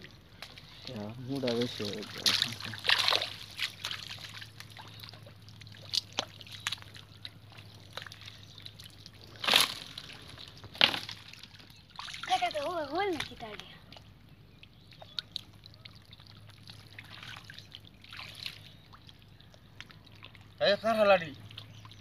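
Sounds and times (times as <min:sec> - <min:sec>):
muddy water sloshing: 0:00.0 - 0:22.0
loud water splashes: 0:01.4 - 0:13.6, 0:15.2 - 0:19.0.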